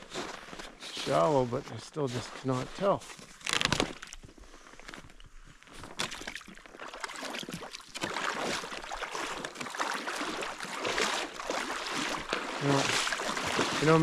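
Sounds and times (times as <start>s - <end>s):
water sloshing around wading legs: 0.0s - 14.0s.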